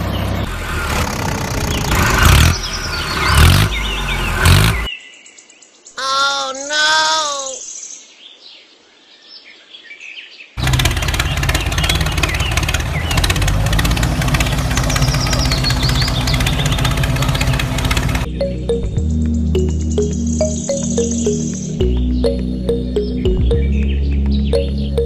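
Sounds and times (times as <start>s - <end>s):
tractor engine running: 0.0s - 4.9s, 10.6s - 18.8s
birds chirping: 0.0s - 25.0s.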